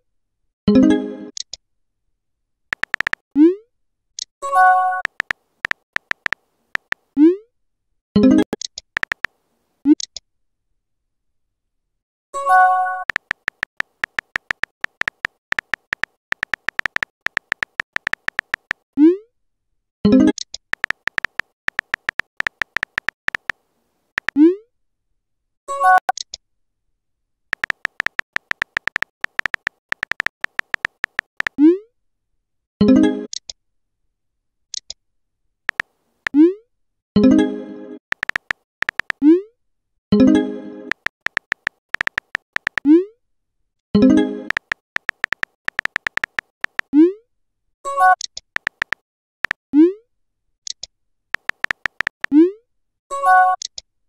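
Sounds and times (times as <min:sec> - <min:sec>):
keyboard tapping clicks: 0:02.7 - 0:03.2, 0:05.0 - 0:07.0, 0:08.5 - 0:09.3, 0:13.0 - 0:18.8, 0:20.3 - 0:23.6, 0:27.5 - 0:31.6, 0:38.1 - 0:39.2, 0:40.9 - 0:42.9, 0:44.5 - 0:46.9, 0:48.6 - 0:49.6, 0:51.4 - 0:52.3.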